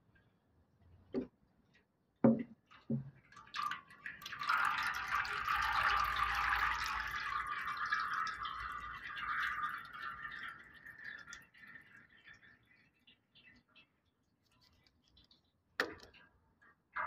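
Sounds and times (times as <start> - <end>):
oil trickling into tub: 2.7 - 16.2.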